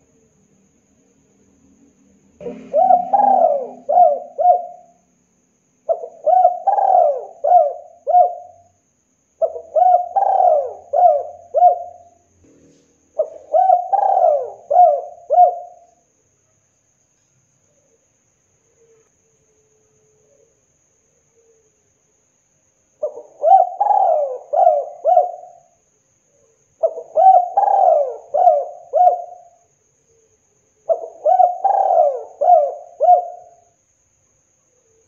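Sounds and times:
dove cooing: 0:02.4 - 0:05.0, 0:05.9 - 0:08.8, 0:09.4 - 0:12.2, 0:13.2 - 0:15.9, 0:23.0 - 0:25.8, 0:26.8 - 0:29.6, 0:30.8 - 0:33.6.

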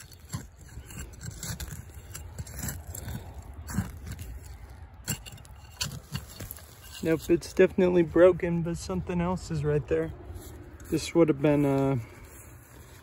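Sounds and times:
dirt crumbling and falling: 0:00.0 - 0:08.9
hand scraping soil: 0:00.0 - 0:13.0.

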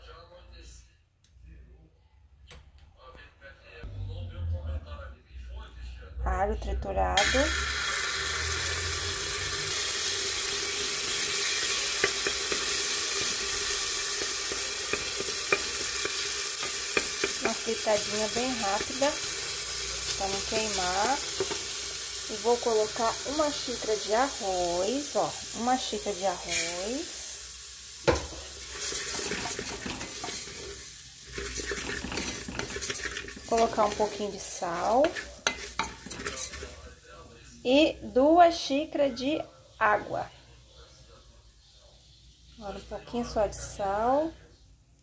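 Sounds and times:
garlic sizzling in oil: 0:07.2 - 0:37.0
wooden spoon scraping pot: 0:11.1 - 0:21.9, 0:28.1 - 0:36.9
wooden spoon knocking on pot: 0:11.8 - 0:13.4, 0:14.1 - 0:19.0, 0:28.1 - 0:30.4.

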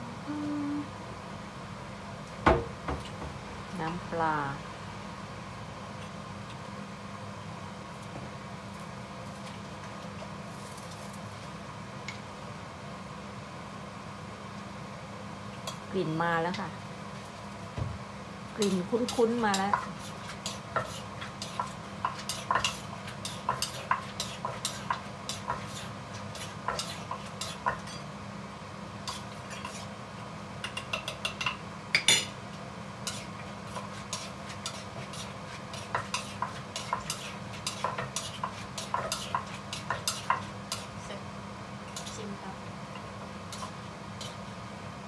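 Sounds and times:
steady low hum: 0:00.0 - 0:09.2
spoon scraping in mortar: 0:33.0 - 0:40.8.

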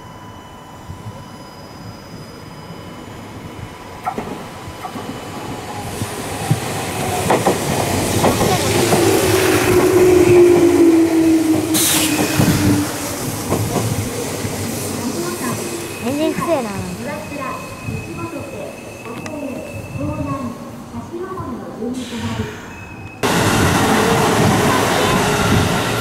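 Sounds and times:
train whine: 0:00.0 - 0:21.3, 0:21.9 - 0:26.0
train wheels clacking over rail joints: 0:06.4 - 0:10.8.

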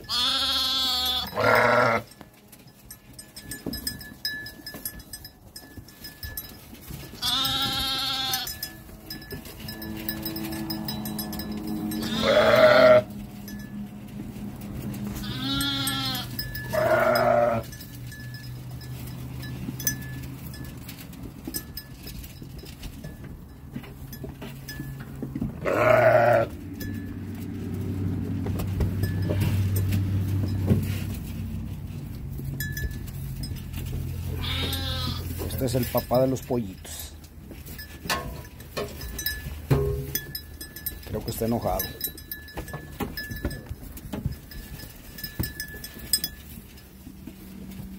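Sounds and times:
sheep and goats bleating: 0:00.0 - 0:02.3, 0:07.0 - 0:13.3, 0:15.0 - 0:17.9, 0:25.6 - 0:26.6, 0:34.2 - 0:35.9.

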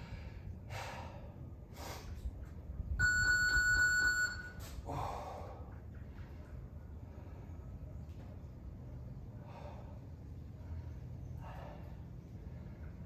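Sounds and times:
electronic timer beeps: 0:03.0 - 0:04.6.

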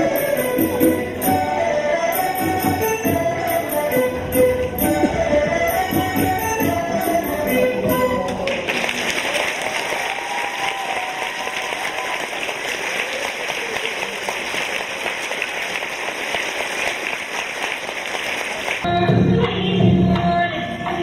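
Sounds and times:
music: 0:00.0 - 0:08.5, 0:18.8 - 0:21.0
audience applauding: 0:08.3 - 0:18.9.

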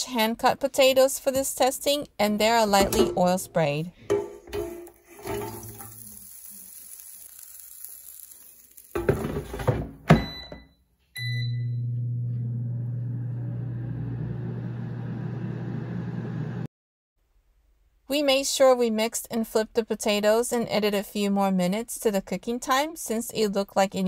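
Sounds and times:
basket knocking shut: 0:09.0 - 0:10.3
short beeps: 0:10.2 - 0:11.9
air fryer fan humming: 0:11.2 - 0:16.6.

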